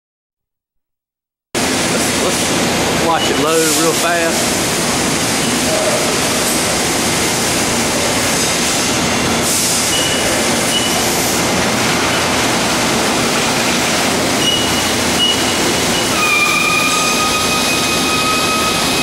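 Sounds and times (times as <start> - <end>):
punch press machine noise: 1.6 - 19.0
high machine squeals: 3.0 - 4.3, 5.4 - 6.5, 7.2 - 11.2, 12.0 - 12.5, 14.3 - 19.0.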